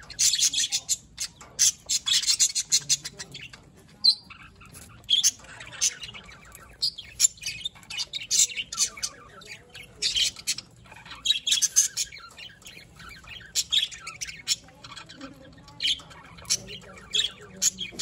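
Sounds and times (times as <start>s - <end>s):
budgerigars chirping and squawking: 0.0s - 18.0s.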